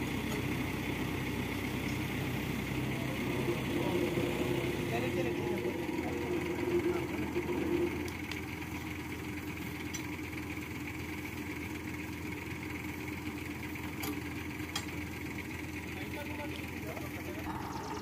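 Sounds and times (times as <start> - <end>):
crane engine idling: 0.0 - 18.0.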